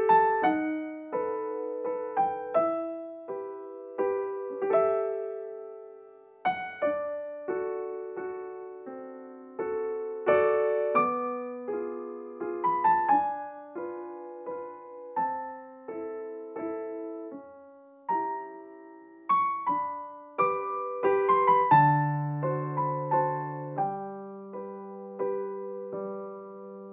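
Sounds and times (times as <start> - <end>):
slow piano music: 0.0 - 26.9.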